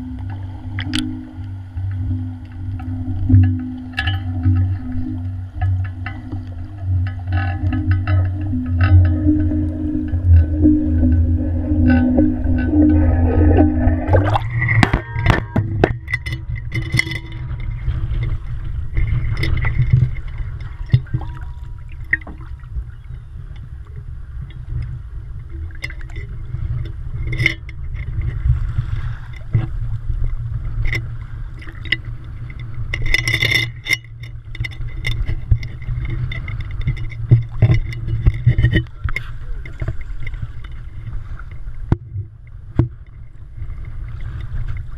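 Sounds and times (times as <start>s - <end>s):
sharp splashes and knocks: 0.0s - 23.1s
water rumbling against housing: 0.0s - 44.9s
water sloshing: 0.0s - 44.9s.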